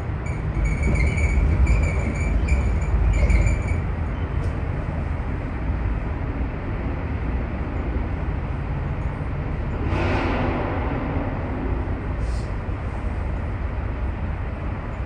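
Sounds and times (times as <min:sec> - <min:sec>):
moving vehicle rumble: 0:00.0 - 0:15.0
rush of noise: 0:05.2 - 0:14.0.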